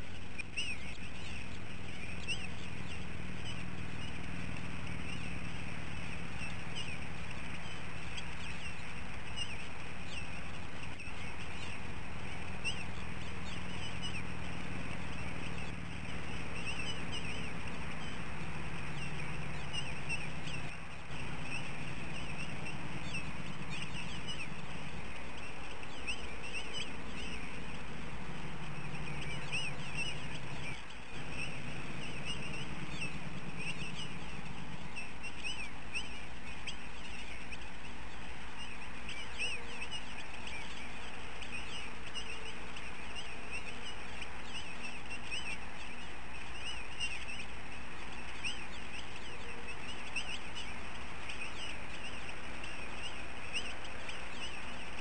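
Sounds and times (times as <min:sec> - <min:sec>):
low hum: 0:00.0 - 0:55.0.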